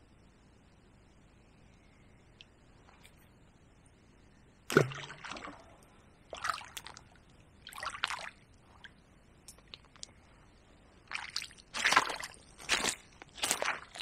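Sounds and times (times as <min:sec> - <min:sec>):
water splashing at bank: 0:04.7 - 0:08.8, 0:11.1 - 0:14.0.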